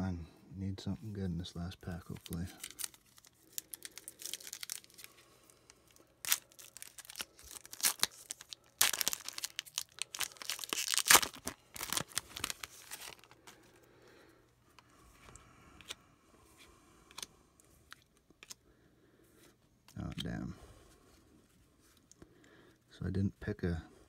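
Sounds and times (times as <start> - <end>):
wrapper crinkling by hand: 1.8 - 5.2, 5.9 - 13.8
card pack wrapper tearing: 1.9 - 5.2, 5.9 - 13.6.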